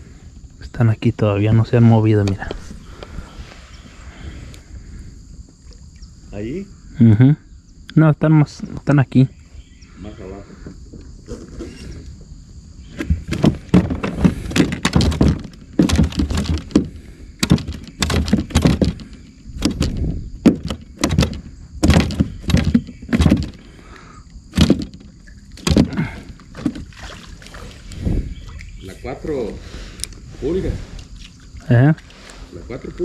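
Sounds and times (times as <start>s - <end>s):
fishing tackle knocking on kayak: 13.3s - 23.6s, 24.6s - 26.0s.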